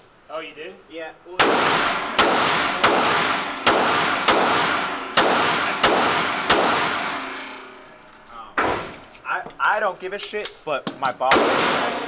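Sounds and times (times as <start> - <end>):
handgun shots echoing indoors: 1.4 - 7.3.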